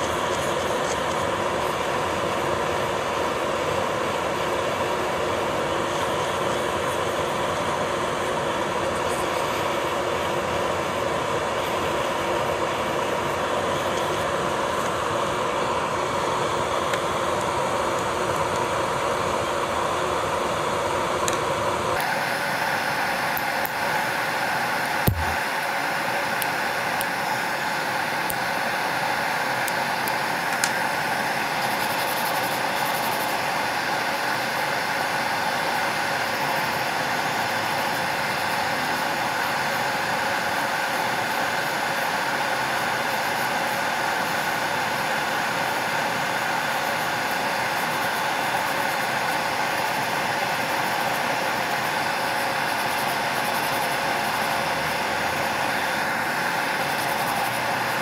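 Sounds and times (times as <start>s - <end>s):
small motor whirring: 22.0s - 58.0s
nail file scratching: 31.6s - 33.4s.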